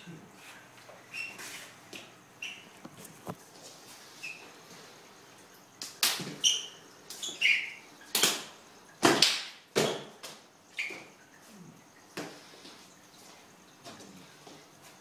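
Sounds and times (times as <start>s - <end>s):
trainers squeaking on wooden floor: 1.0s - 3.3s
hands slapping in sparring: 5.8s - 6.4s, 8.1s - 10.4s.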